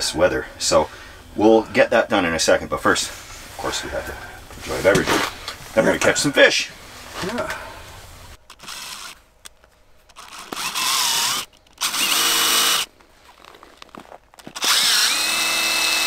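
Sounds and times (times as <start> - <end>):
cordless impact driver: 8.5 - 9.2, 10.1 - 12.9, 14.4 - 16.0.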